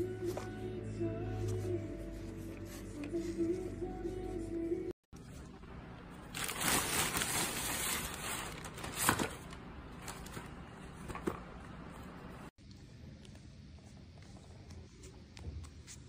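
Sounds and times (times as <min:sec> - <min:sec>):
plastic bag crinkling: 0:06.2 - 0:10.4.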